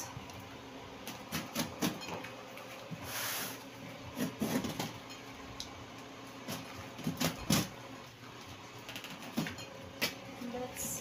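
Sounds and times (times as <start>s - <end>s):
cardboard and tape scraping: 3.0s - 4.9s.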